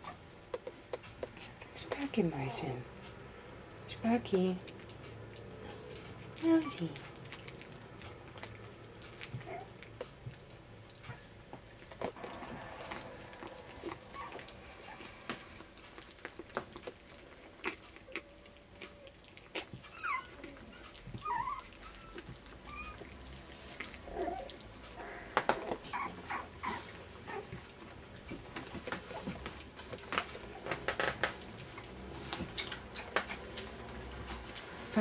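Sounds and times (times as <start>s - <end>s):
puppies squeaking and whimpering: 5.6s - 10.0s, 12.1s - 27.9s, 28.8s - 34.2s.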